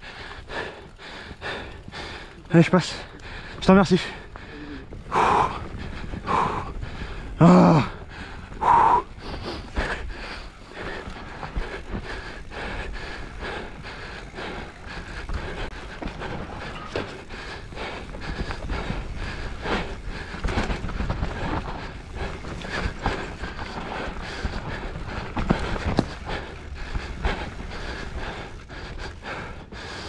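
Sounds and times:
bike tyres rolling over dirt: 0:00.0 - 0:30.0
wind rumble on microphone: 0:04.4 - 0:16.7
bike knocks and rattles: 0:15.0 - 0:28.1.

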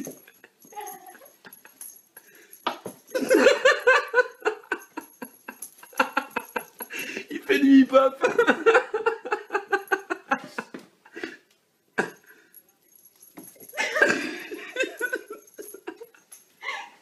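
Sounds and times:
people laughing: 0:03.2 - 0:10.6, 0:13.8 - 0:16.2.

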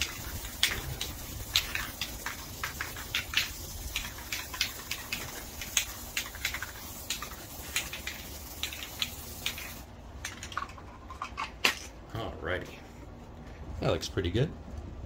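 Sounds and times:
spray can sputtering: 0:00.0 - 0:09.9
spray hiss: 0:00.0 - 0:09.9.

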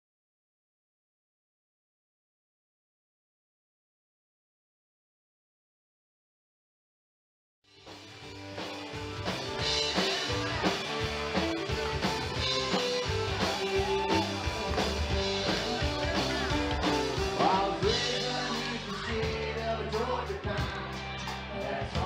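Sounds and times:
electric guitar: 0:07.7 - 0:22.0
drum kit: 0:07.8 - 0:22.0.

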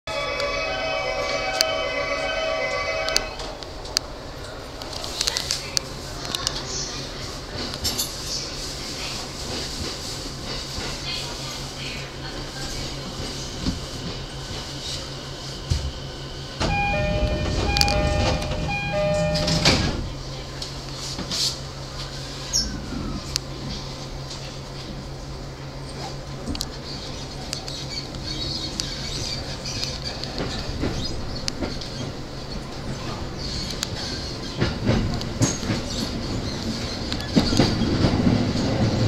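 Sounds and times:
train doors moving: 0:12.4 - 0:25.0, 0:25.9 - 0:39.0
two-note door chime: 0:16.6 - 0:20.0.

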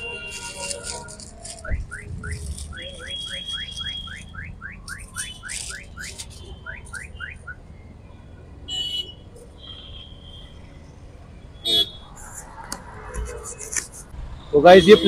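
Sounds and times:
electronic alarm chirping: 0:01.8 - 0:07.7.

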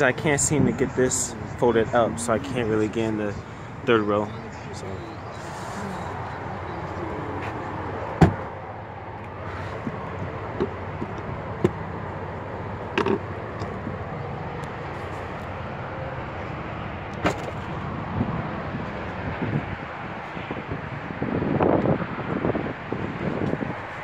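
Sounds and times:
car door shutting thud: 0:08.2 - 0:08.4.

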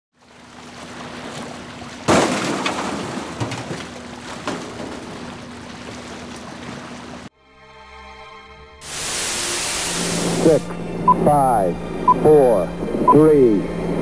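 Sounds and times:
water noise: 0:00.1 - 0:07.3, 0:08.8 - 0:14.0
wind: 0:00.1 - 0:07.3
low hum: 0:07.8 - 0:14.0
loud rush: 0:08.8 - 0:14.0.

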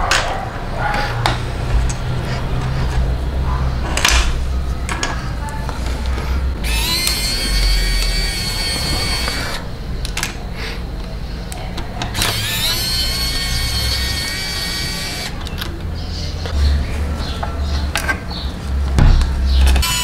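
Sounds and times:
electric screwdriver whirring: 0:06.6 - 0:09.7, 0:12.1 - 0:15.5, 0:19.8 - 0:20.0.

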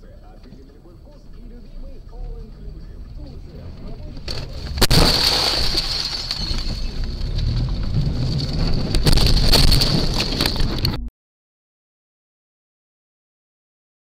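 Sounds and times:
sharp knocks of car crash: 0:04.2 - 0:10.9.

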